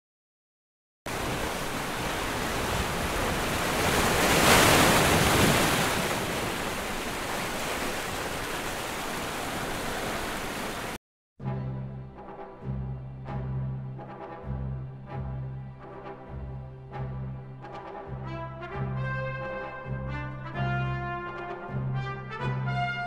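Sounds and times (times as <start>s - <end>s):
sea waves washing onto beach: 1.1s - 11.0s.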